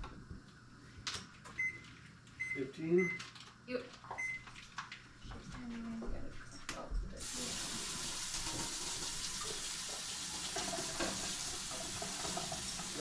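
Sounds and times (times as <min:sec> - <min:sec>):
faucet running into sink: 0:07.2 - 0:13.0.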